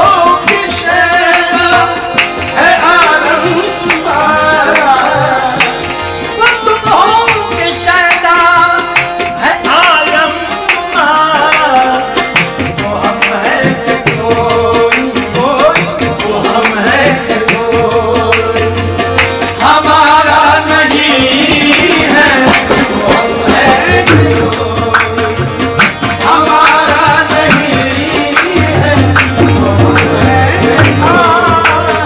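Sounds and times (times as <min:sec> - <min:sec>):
tabla drumming: 0:00.0 - 0:32.0
person singing ornamented melody: 0:02.6 - 0:05.6.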